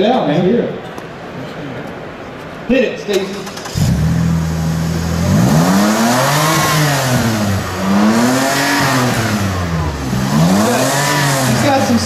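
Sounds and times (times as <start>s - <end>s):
car engine revving: 3.4s - 12.0s.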